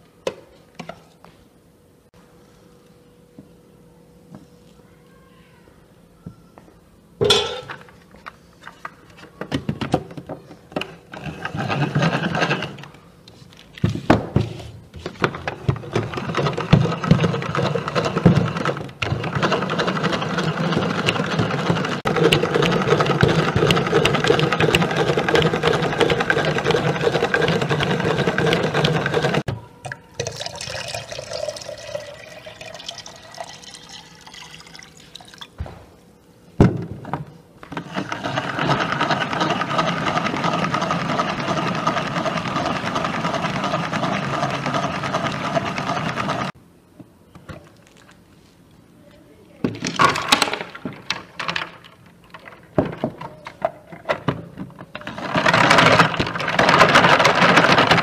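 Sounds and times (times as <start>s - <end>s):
water running and pouring: 30.2s - 35.5s.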